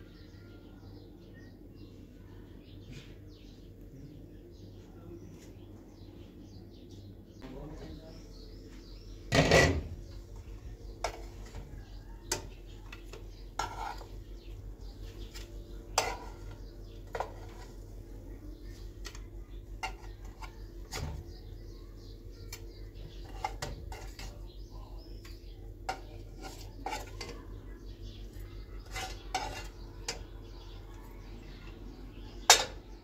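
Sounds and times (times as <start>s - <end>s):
pots and utensils clattering: 9.2s - 18.0s, 18.9s - 21.4s, 22.5s - 24.5s, 25.2s - 30.9s, 32.4s - 33.0s.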